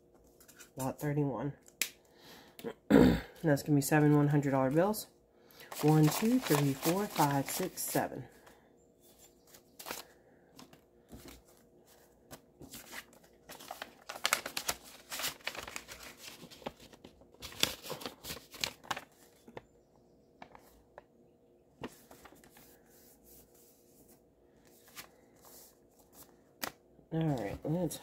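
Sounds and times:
paper rustling and crinkling: 0:05.6 - 0:08.5, 0:09.1 - 0:19.7, 0:20.4 - 0:21.1, 0:21.8 - 0:27.7.

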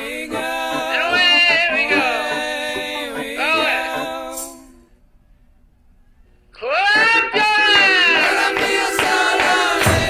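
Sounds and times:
music with singing: 0:00.0 - 0:05.0, 0:06.6 - 0:10.0.

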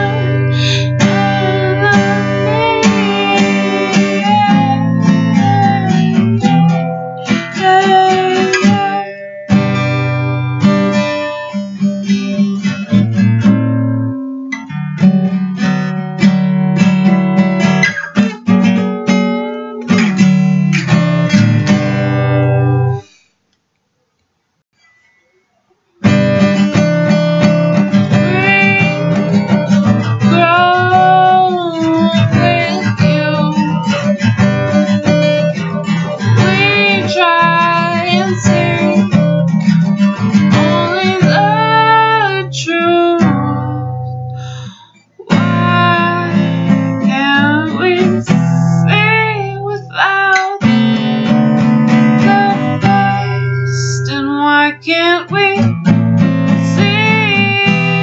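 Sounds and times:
woman singing: 0:00.0 - 0:09.6, 0:28.1 - 0:39.6, 0:40.2 - 0:58.0
acoustic guitar strumming: 0:00.0 - 0:23.1, 0:26.0 - 0:58.0.

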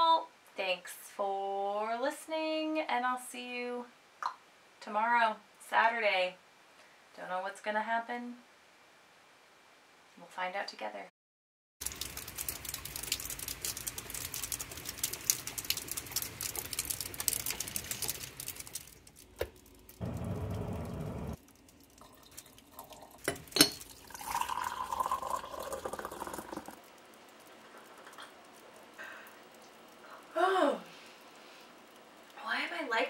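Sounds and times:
electric kettle heating water: 0:11.8 - 0:26.8
rain falling on lawn: 0:11.8 - 0:33.0.

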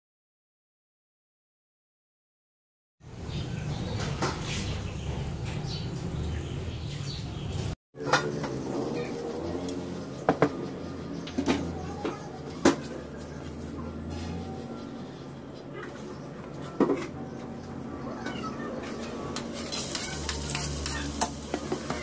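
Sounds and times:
pot boiling and bubbling: 0:08.0 - 0:11.8, 0:18.8 - 0:22.0
wok pops and clicks: 0:19.4 - 0:22.0.

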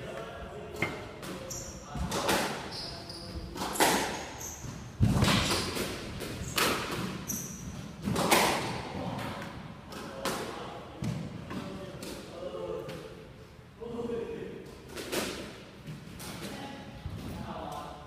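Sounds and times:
shoes squeaking on wooden floor: 0:02.6 - 0:05.8
squash ball hits: 0:03.5 - 0:07.3, 0:08.0 - 0:09.3.

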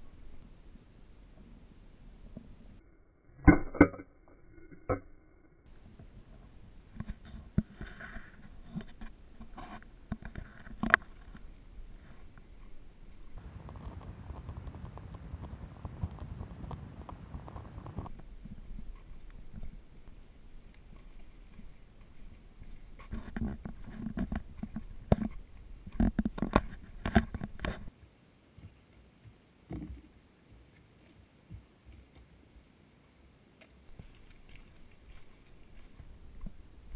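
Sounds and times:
faint rustling of brush: 0:05.7 - 0:36.9
footsteps on dirt trail: 0:13.4 - 0:18.2
gear rustling: 0:33.9 - 0:36.9.

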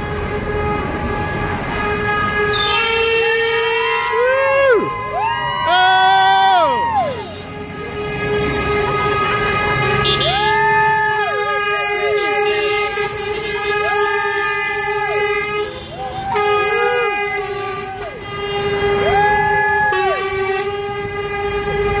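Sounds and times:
truck air horn chord: 0:00.0 - 0:04.1, 0:11.2 - 0:19.1
truck air horn blasts: 0:00.0 - 0:04.3, 0:07.0 - 0:22.0.

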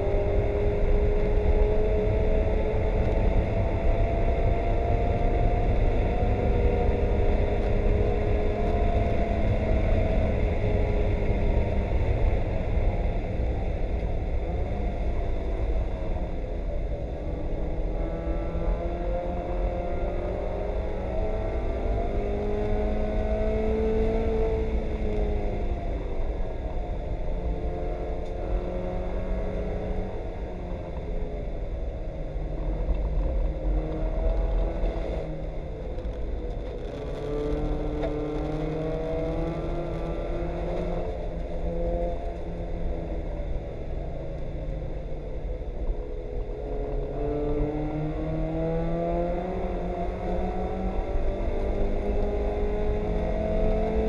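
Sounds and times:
race car engine from inside: 0:00.0 - 0:54.0.

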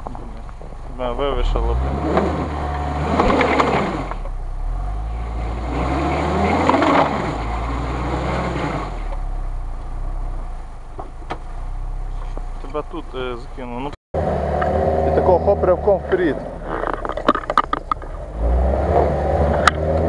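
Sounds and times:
car engine revving hard: 0:01.2 - 0:09.2, 0:14.2 - 0:17.1, 0:17.9 - 0:20.0.

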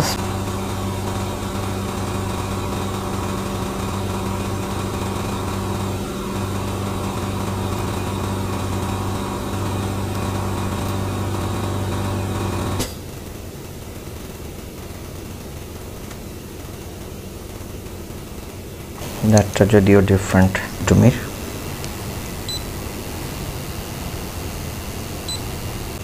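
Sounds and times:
small electric motor humming: 0:00.0 - 0:26.0.

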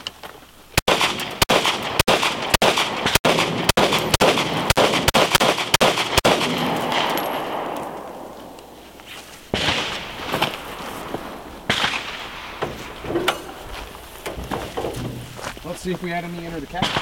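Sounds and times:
handgun shots echoing: 0:00.8 - 0:08.8.

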